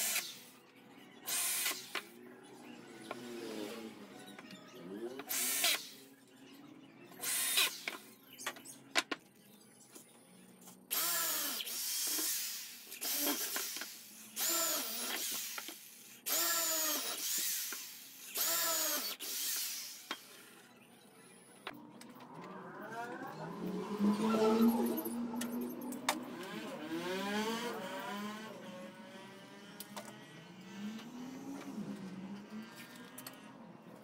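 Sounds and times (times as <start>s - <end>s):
electric drill bursts into wood: 5.3s - 5.9s, 16.3s - 20.3s.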